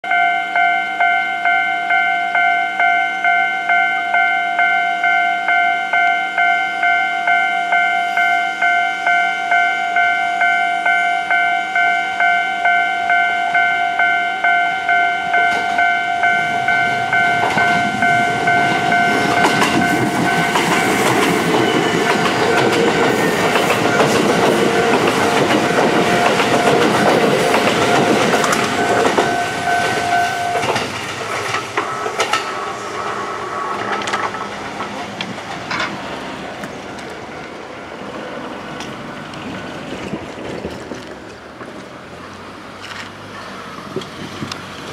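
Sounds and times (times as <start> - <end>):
level-crossing warning bell ringing: 0.0 - 36.0
electric train passing: 0.1 - 44.9.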